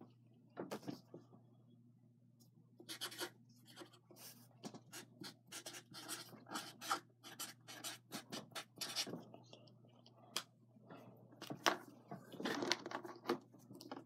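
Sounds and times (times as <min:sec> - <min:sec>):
pen writing on paper: 0:04.9 - 0:09.1.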